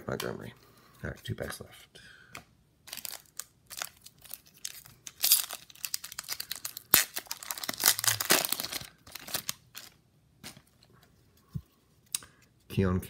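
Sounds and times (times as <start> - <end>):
foil wrapper tearing and crinkling: 2.9 - 10.0.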